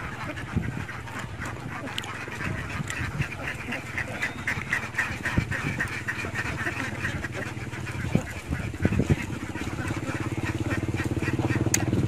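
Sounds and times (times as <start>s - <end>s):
ducks quacking: 0.0s - 12.0s.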